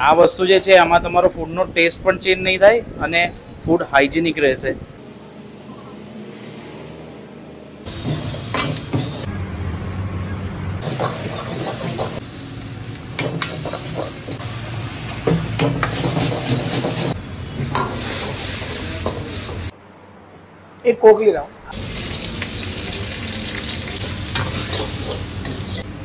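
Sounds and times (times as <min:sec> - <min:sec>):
food sizzling: 0:07.8 - 0:09.3, 0:10.8 - 0:19.7, 0:21.7 - 0:26.0
metal ladle scraping a wok: 0:07.9 - 0:09.3, 0:10.8 - 0:12.2, 0:15.6 - 0:19.7, 0:23.1 - 0:25.9.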